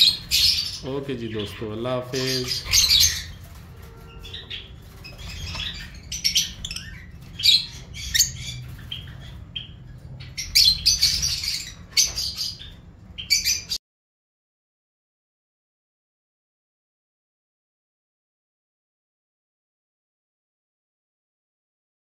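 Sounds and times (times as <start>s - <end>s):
lovebirds chirping and squawking: 0.0s - 13.8s.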